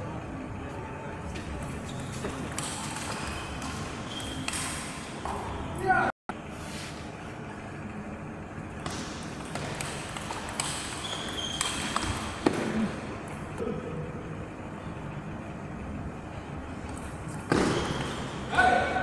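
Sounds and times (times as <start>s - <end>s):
table tennis ball hitting paddles: 8.8s - 12.8s.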